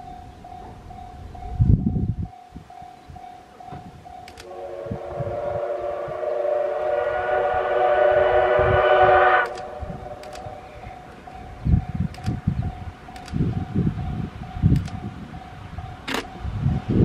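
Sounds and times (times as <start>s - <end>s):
wind buffeting microphone: 0.0s - 17.0s
steam locomotive whistle: 4.4s - 11.3s.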